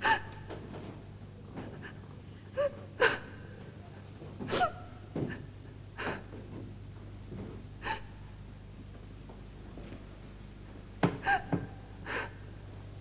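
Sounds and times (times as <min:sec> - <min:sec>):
woman gasping and sobbing: 0:11.2 - 0:12.5.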